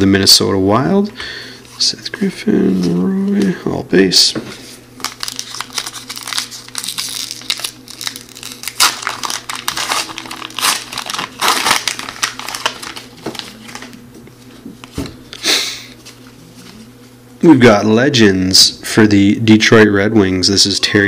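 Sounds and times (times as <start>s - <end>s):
plastic wrapper tearing and crinkling: 5.0s - 14.0s.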